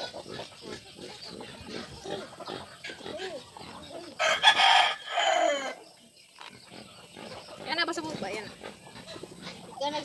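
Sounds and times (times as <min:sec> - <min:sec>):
rooster crowing: 0:04.2 - 0:05.8.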